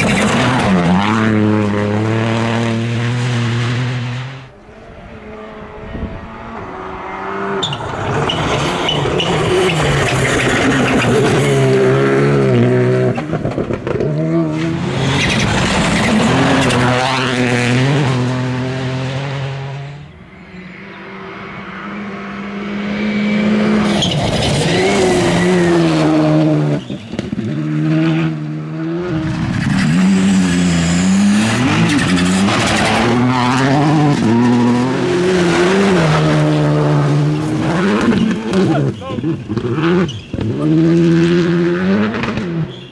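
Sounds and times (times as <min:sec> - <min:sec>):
rally car engine revving past: 0:00.0 - 0:42.7.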